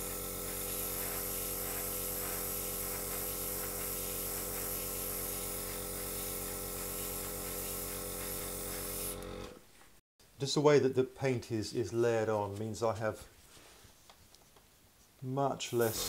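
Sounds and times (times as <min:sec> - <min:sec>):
airbrush spraying hiss: 0:00.0 - 0:09.2, 0:15.8 - 0:16.0
air compressor buzzing hum: 0:00.0 - 0:09.7, 0:15.8 - 0:16.0.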